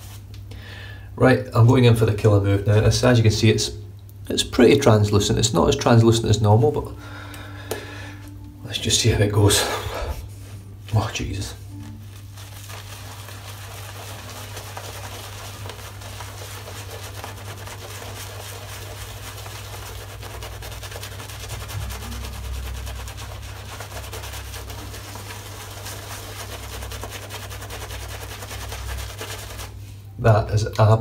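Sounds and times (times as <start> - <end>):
shaving brush scrubbing lather: 12.0 - 30.0.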